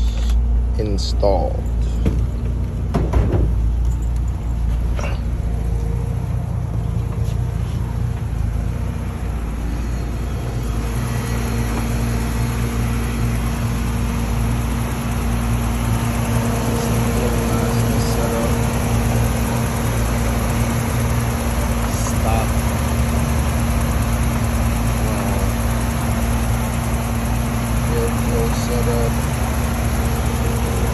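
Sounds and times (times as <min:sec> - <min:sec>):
car engine idling: 0:00.0 - 0:30.9.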